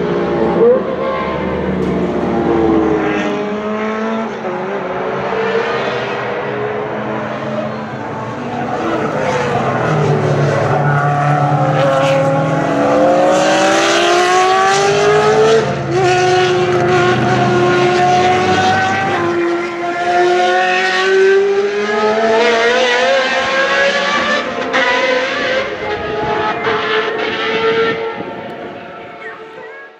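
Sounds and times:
race car engine accelerating: 0.0s - 29.9s.

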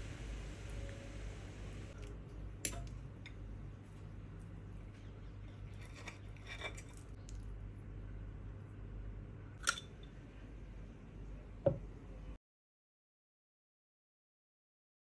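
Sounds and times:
low steady hum: 0.0s - 12.4s.

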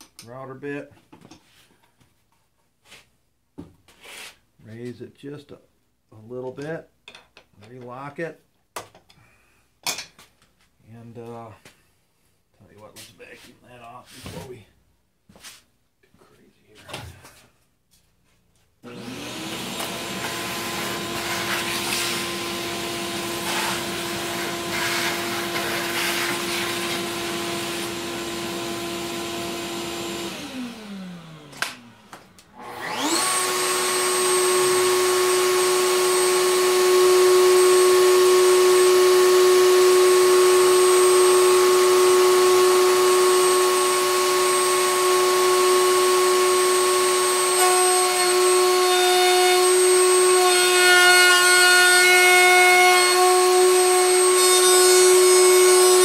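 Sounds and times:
router motor whining: 18.8s - 56.0s
shop vacuum running: 18.8s - 56.0s.

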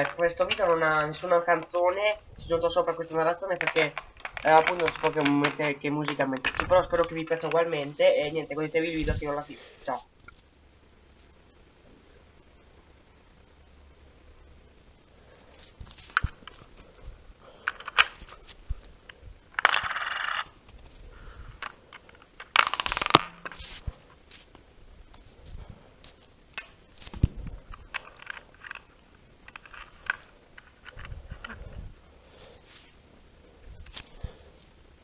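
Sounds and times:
plastic bricks clicking and knocking: 0.0s - 0.8s, 3.6s - 7.6s, 17.6s - 18.3s, 19.6s - 20.5s, 21.6s - 23.6s, 27.7s - 31.6s.

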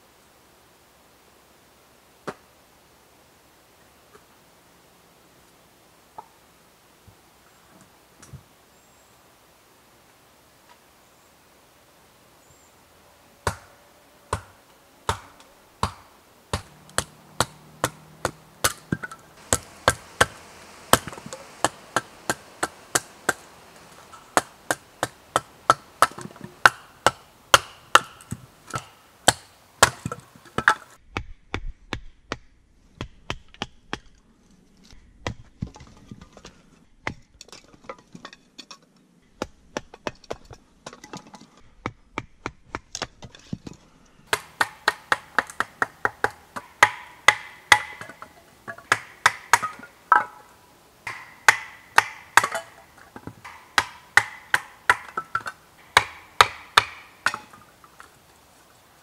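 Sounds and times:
wooden baton striking blade: 16.6s - 30.8s, 44.3s - 50.4s, 51.1s - 57.7s.

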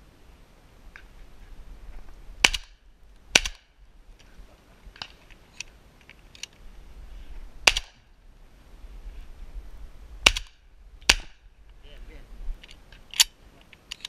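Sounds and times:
shotgun shots: 2.4s - 3.7s, 7.6s - 8.1s, 10.2s - 11.5s.

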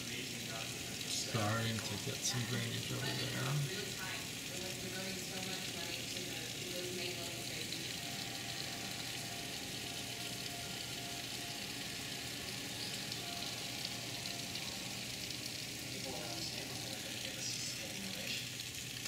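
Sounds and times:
heavy rain on pavement: 0.0s - 7.3s.

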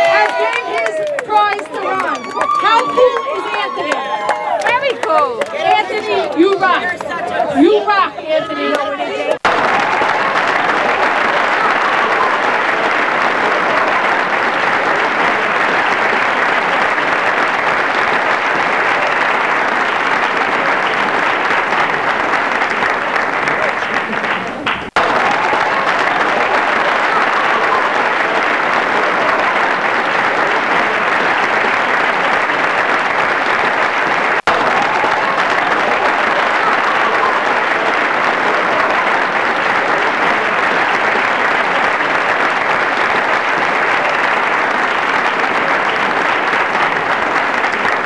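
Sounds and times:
large audience applauding: 0.0s - 48.0s.

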